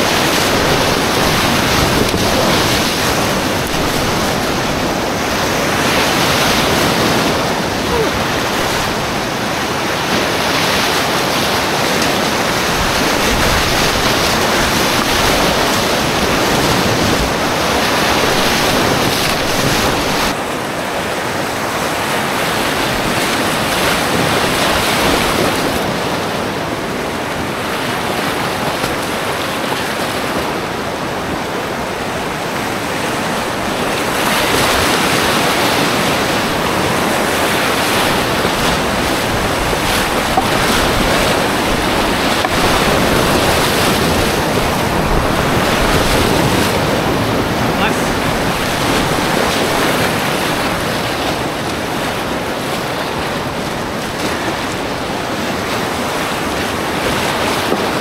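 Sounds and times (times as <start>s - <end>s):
whitewater rapids rushing: 0.0s - 58.0s.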